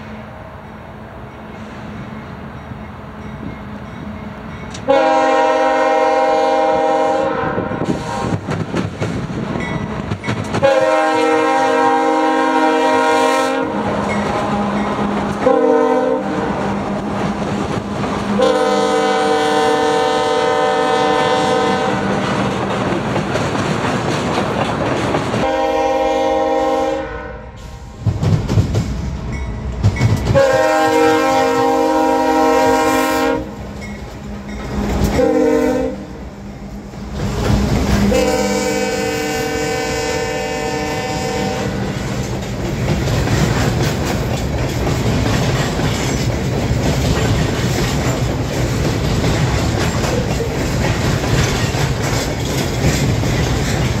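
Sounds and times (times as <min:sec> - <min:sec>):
heavy train rumble: 0:00.0 - 0:54.0
train wheels clattering on rails: 0:01.2 - 0:26.8, 0:27.6 - 0:54.0
locomotive air horn: 0:04.9 - 0:08.4, 0:10.6 - 0:16.9, 0:18.3 - 0:22.3, 0:25.4 - 0:27.9, 0:30.3 - 0:33.6, 0:35.1 - 0:36.2, 0:38.0 - 0:42.0.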